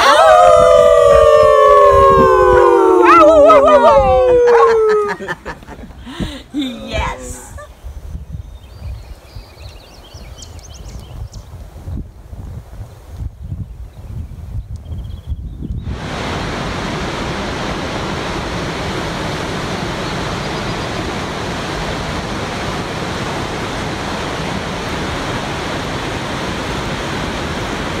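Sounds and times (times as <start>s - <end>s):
waterfall rushing: 0.0s - 7.6s, 15.8s - 28.0s
wind on microphone: 0.0s - 28.0s.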